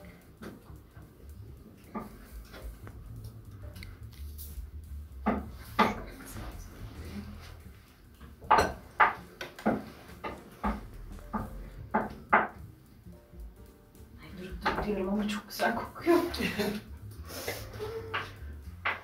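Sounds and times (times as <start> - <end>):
kitchenware clattering: 8.3 - 12.6.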